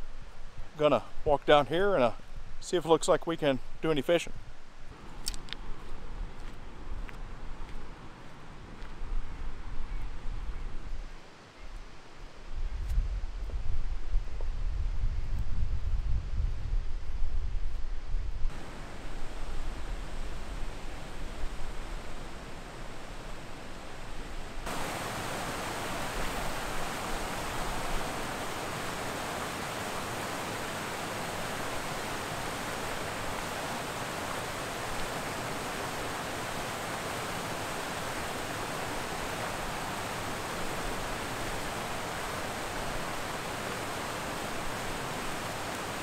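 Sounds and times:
water rushing down a spillway: 18.5 - 46.0.

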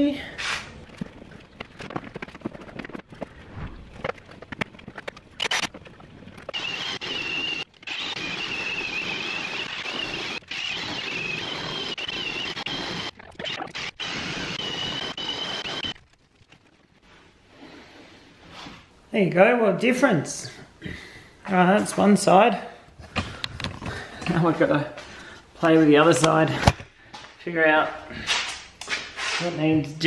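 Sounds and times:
power tool buffing whine: 6.6 - 15.9.

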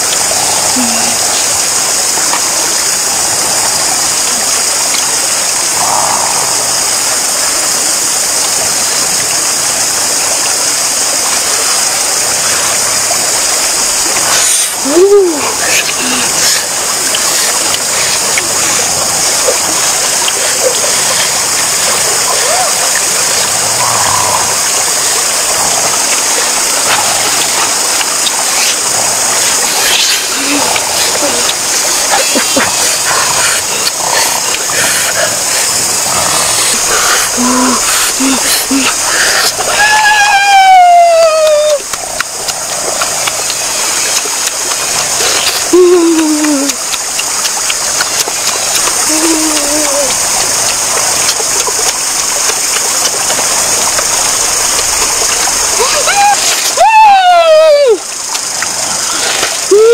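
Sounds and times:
stream water rushing: 0.0 - 59.9
faint ticks: 41.4 - 55.6, 58.1 - 59.6.

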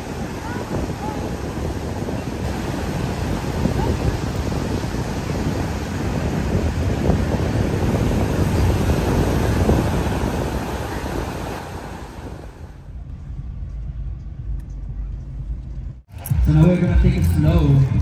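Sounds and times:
waves breaking on beach: 0.0 - 12.8
wind buffeting microphone: 0.0 - 16.1
low rumble: 12.3 - 18.0.

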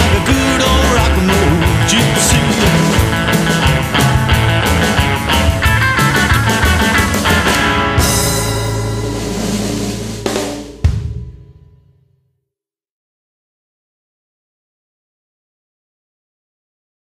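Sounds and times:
busy drumming: 0.0 - 11.8
rock band playing: 0.0 - 11.9
cymbal wash: 8.1 - 11.7.

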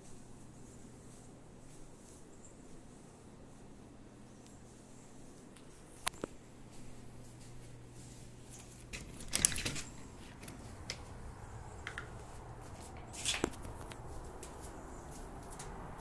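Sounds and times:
door blinds clattering: 8.6 - 11.3
deadbolt clicking: 8.9 - 11.1.

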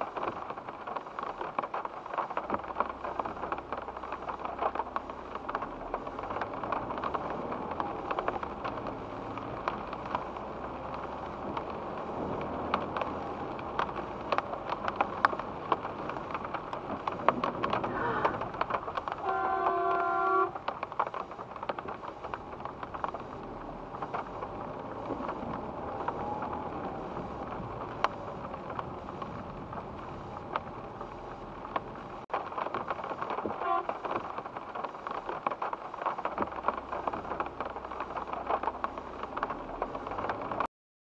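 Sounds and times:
raindrops tapping on windscreen: 0.0 - 40.7
car horn: 19.2 - 20.6, 33.6 - 34.0.

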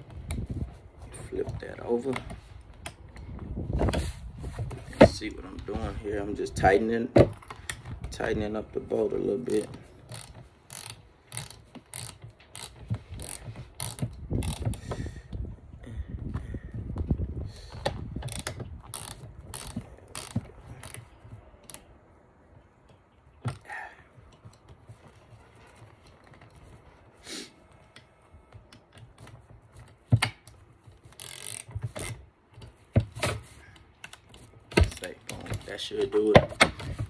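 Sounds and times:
tool clicking tightening a bolt: 9.6 - 14.9, 18.2 - 21.9, 30.2 - 32.7.

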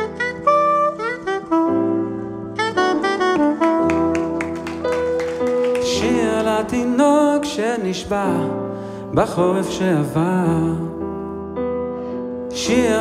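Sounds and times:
soprano saxophone melody: 0.0 - 6.7
piano chords: 0.0 - 13.0.

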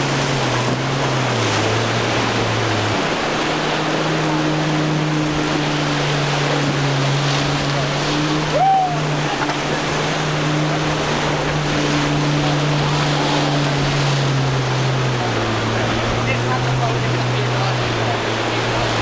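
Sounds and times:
outboard motor running: 0.0 - 19.0
waves and spray washing: 0.0 - 19.0.

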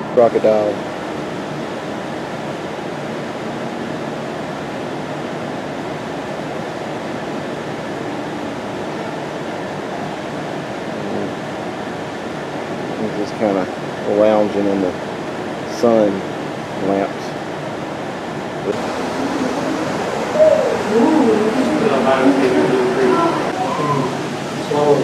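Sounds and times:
ventilation rushing: 0.0 - 25.0.

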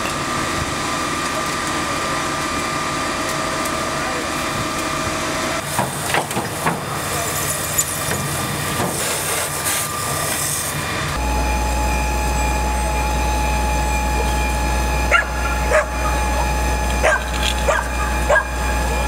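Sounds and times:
low engine drone: 0.0 - 19.0
water spray and steam hissing: 5.6 - 10.8
thin steady whine: 6.9 - 19.0
sharp bark-like calls: 17.0 - 18.6.

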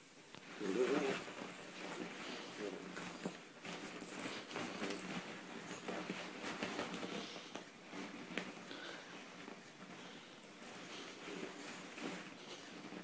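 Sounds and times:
beanbag cover rustling: 0.5 - 8.7.

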